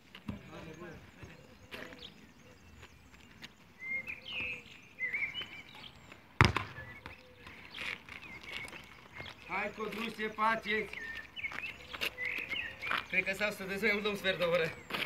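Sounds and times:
football kicked thud: 6.4s - 7.2s.

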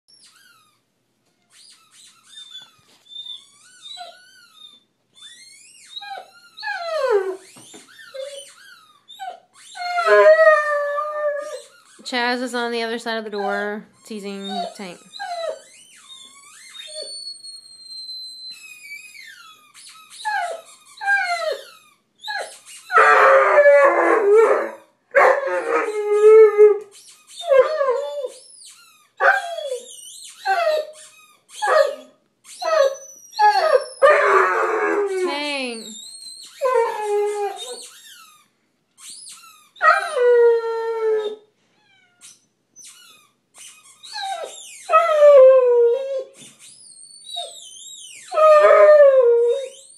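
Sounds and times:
dog yelping and whining: 0.1s - 12.4s, 13.3s - 49.9s
dog howling: 9.9s - 11.7s, 23.0s - 26.9s, 32.8s - 35.3s, 48.3s - 49.8s.

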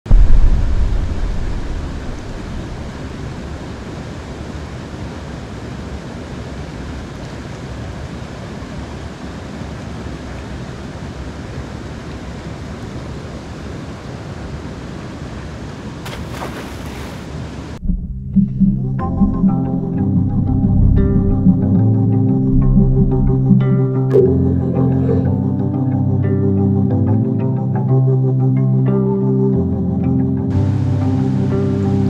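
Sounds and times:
river water flowing: 0.1s - 17.8s, 30.5s - 32.0s.

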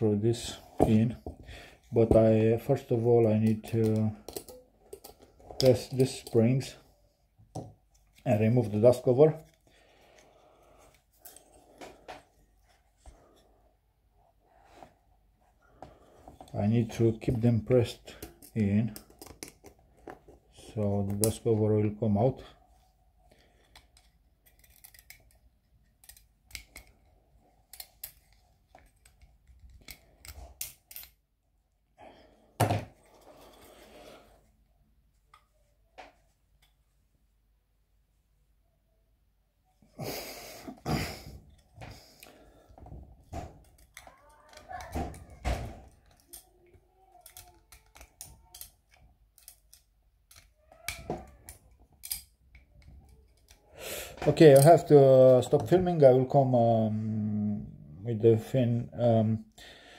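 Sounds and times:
small metal parts clicking: 23.6s - 27.1s, 27.7s - 31.2s, 45.9s - 53.6s
small clicks and knocks of hands: 43.2s - 53.6s.

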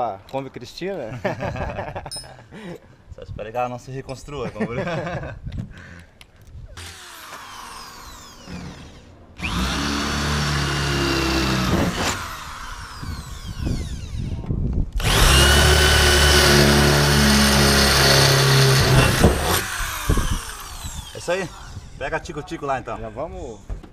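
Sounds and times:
electric drill boring through metal: 6.8s - 14.4s, 15.0s - 21.8s.

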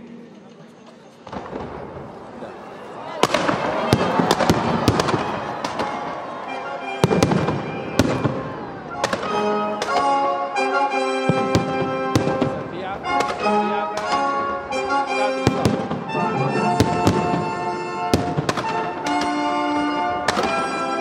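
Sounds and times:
music: 0.0s - 2.0s, 3.2s - 21.0s
fireworks bangs and crackle: 1.2s - 2.4s, 3.1s - 10.2s, 11.2s - 14.5s, 15.2s - 20.9s.

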